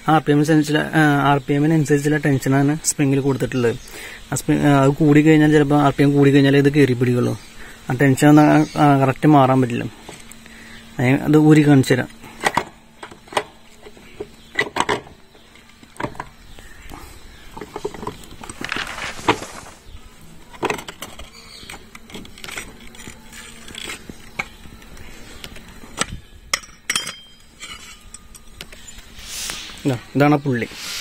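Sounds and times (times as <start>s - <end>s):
rubbing and scraping: 17.6s - 19.9s
metal clinks and knocks: 26.5s - 29.0s.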